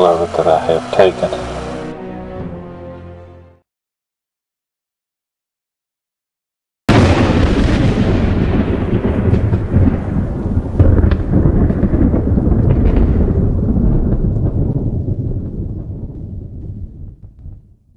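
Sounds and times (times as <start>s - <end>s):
thunder clap and rumble: 6.9s - 17.9s
thunder cracks: 6.9s - 17.9s.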